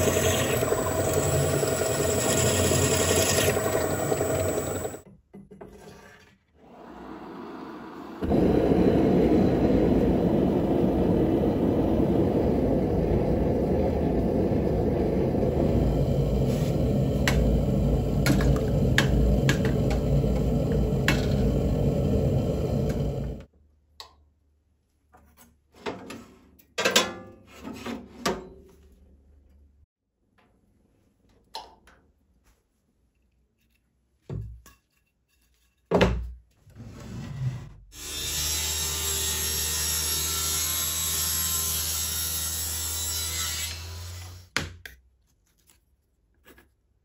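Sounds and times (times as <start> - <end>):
gas torch roaring: 0.0 - 5.0, 6.7 - 23.5.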